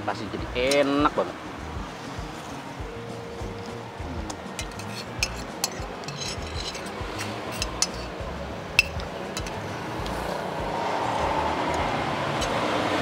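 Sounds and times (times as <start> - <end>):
background music with low beat: 0.1 - 12.7
cutlery clinking on a plate: 4.6 - 8.1, 8.8 - 9.6.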